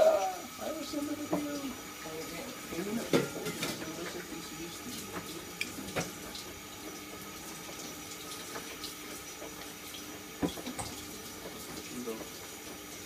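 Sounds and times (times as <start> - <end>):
tap water running into sink: 0.0 - 13.0.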